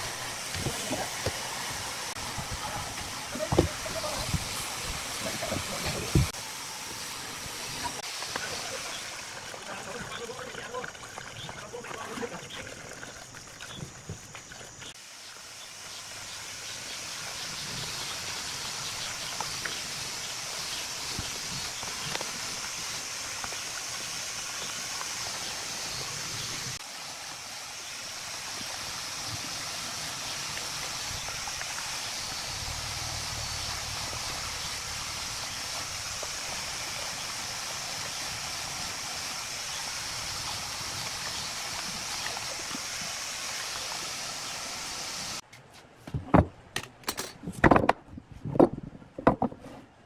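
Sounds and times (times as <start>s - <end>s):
water splashing: 0.0s - 45.4s
water pouring into basin: 7.4s - 15.5s.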